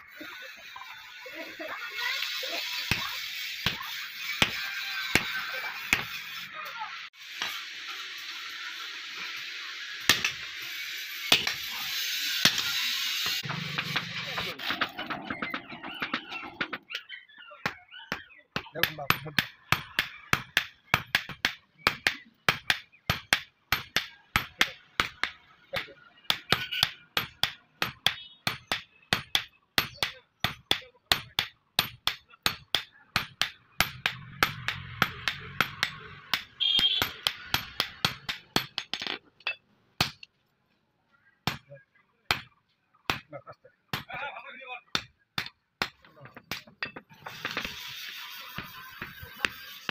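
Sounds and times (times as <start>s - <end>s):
hammer striking hot steel on anvil: 2.8s - 6.4s, 7.3s - 7.8s, 10.0s - 14.8s, 18.1s - 40.3s, 45.0s - 49.9s.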